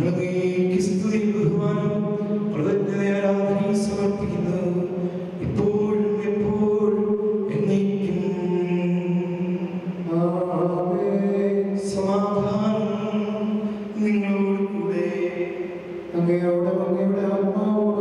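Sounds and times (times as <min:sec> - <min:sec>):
person singing chant: 0:00.0 - 0:18.0.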